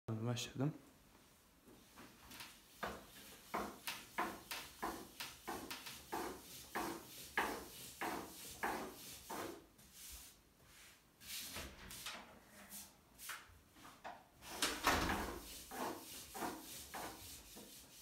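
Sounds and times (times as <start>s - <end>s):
rolling pin rolling dough on glass: 2.3s - 9.7s, 15.1s - 18.0s.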